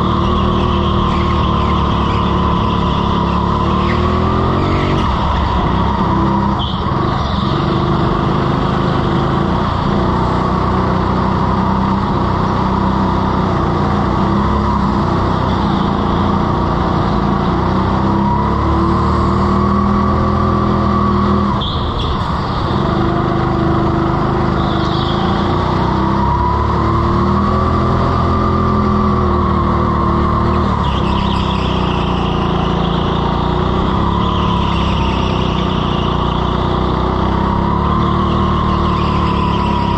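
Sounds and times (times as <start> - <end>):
tyre squeals: 0.0 - 8.6, 20.6 - 39.9
go-kart engine running hard: 0.0 - 39.9.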